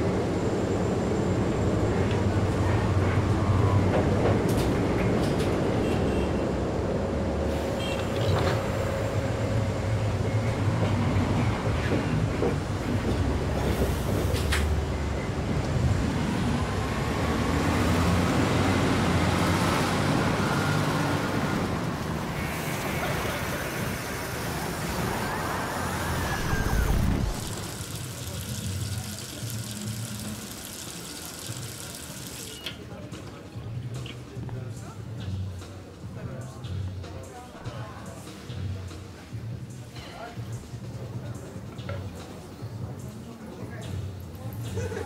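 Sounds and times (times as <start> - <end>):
vehicle rumble: 0.0 - 29.5.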